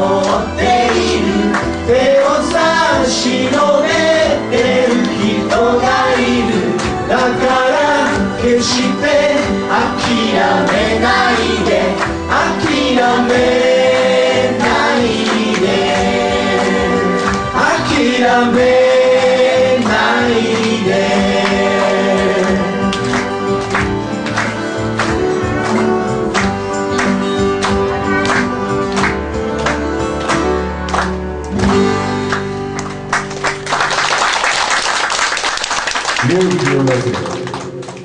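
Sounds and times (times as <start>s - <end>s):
group singing with instruments: 0.0s - 24.3s.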